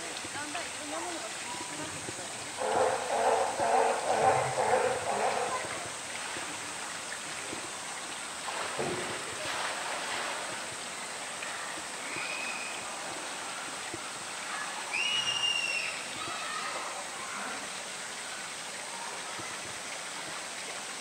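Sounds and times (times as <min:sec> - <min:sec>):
water rushing: 0:00.0 - 0:21.0
water splashing: 0:00.0 - 0:21.0
high animal calls: 0:02.6 - 0:05.9.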